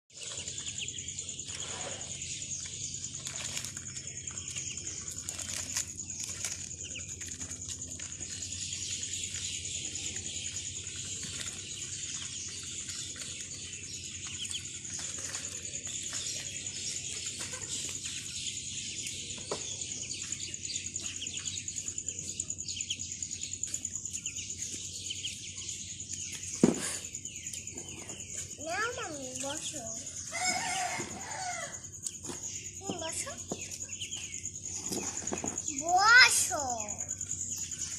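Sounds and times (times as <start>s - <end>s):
ducklings peeping: 0.1s - 35.7s.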